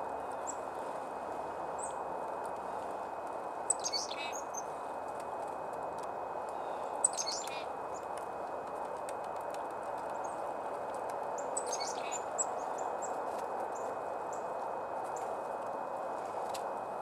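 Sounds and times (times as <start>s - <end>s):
outdoor background hiss: 0.0s - 17.0s
songbirds calling: 1.8s - 2.0s, 3.6s - 4.8s, 6.6s - 8.1s, 11.3s - 15.3s.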